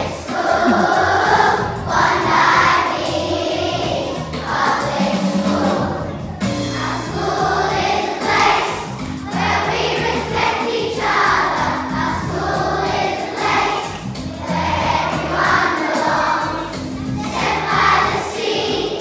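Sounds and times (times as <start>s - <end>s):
choir singing: 0.0s - 6.1s, 6.7s - 19.0s.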